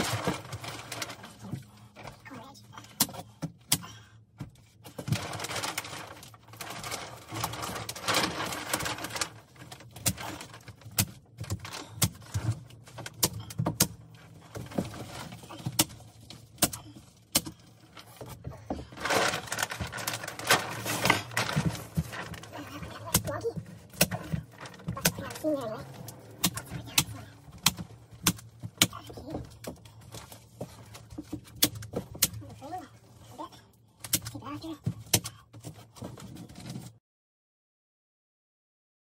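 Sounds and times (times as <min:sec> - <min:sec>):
plastic sheet crinkling: 0:00.0 - 0:02.2, 0:04.9 - 0:13.2, 0:14.0 - 0:33.3.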